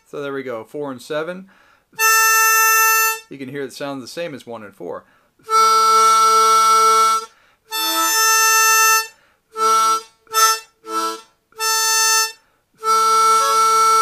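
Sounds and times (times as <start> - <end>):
harmonica octave notes: 2.0 - 3.4, 5.4 - 14.0.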